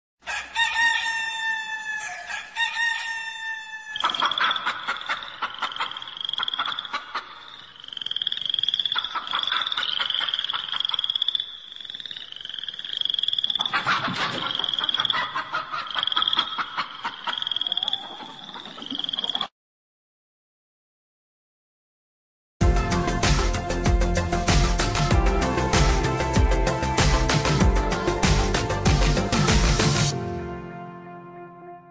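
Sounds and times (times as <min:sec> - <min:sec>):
rooster crowing ringtone: 0:00.3 - 0:04.2.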